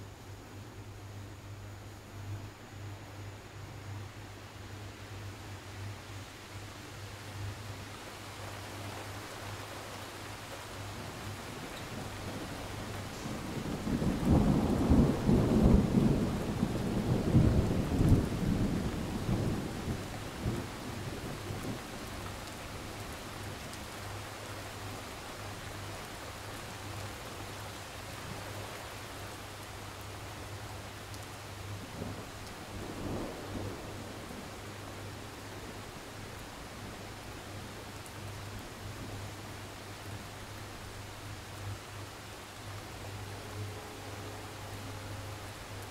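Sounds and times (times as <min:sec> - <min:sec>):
steady rain: 0:00.0 - 0:45.9
thunder rolling: 0:12.3 - 0:20.7.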